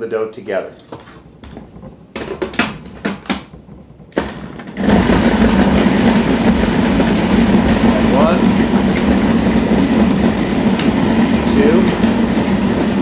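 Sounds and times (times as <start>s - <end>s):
plastic clicks and knocks: 0.8s - 4.8s
food processor motor running: 1.5s - 13.0s.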